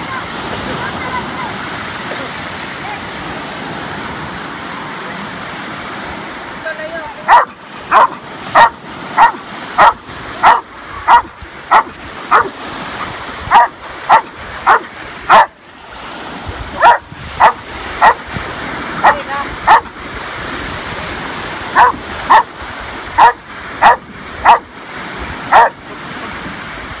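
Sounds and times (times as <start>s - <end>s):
waves washing on shore: 0.0s - 27.0s
dog barking: 7.3s - 12.6s, 13.5s - 15.6s, 16.8s - 18.2s, 19.0s - 19.9s, 21.8s - 22.5s, 23.2s - 24.7s, 25.5s - 25.8s.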